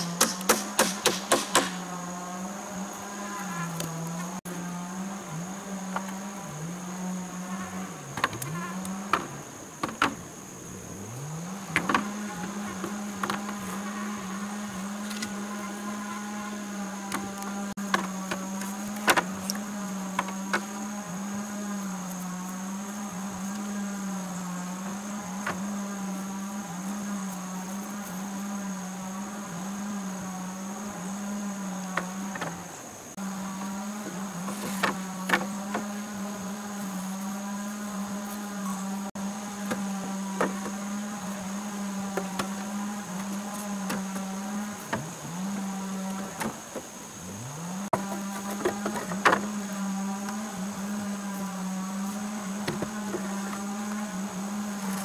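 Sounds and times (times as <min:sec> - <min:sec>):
bamboo poles knocking: 0:17.0 - 0:20.7.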